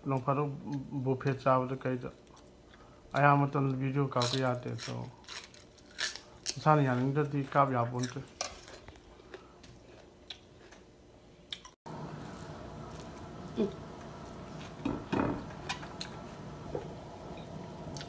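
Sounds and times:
wet chewing: 0:17.3 - 0:18.0.

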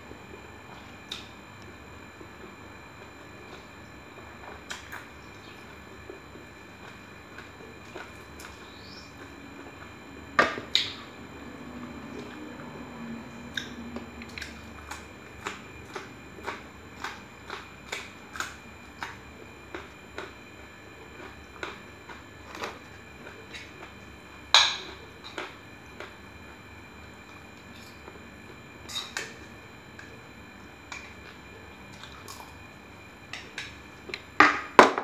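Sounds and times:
person chewing with mouth clicks: 0:13.5 - 0:20.4.

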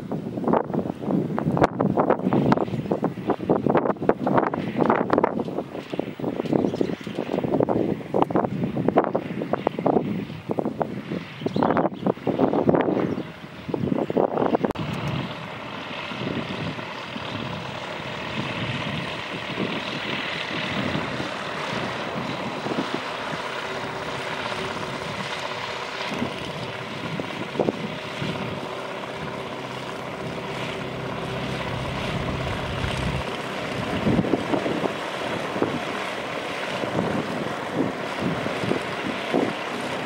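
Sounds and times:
light aircraft engine and propeller: 0:00.0 - 0:40.0.

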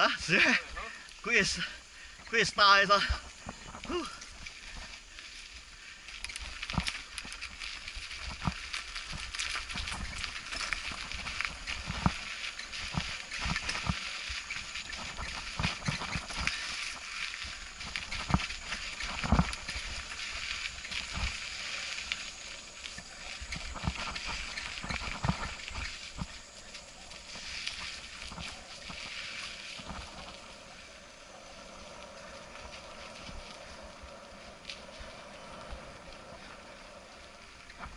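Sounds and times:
wind and tyre hiss: 0:00.0 - 0:37.9
bike rattling and knocking: 0:06.2 - 0:26.5.

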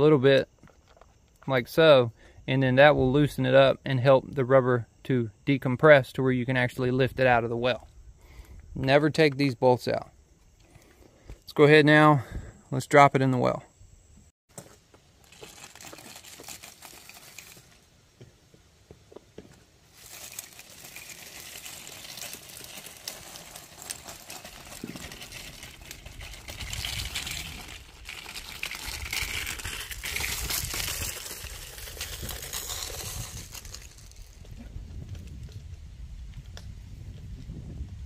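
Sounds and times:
pipe scraping and rustling: 0:14.5 - 0:17.9, 0:19.4 - 0:35.6.

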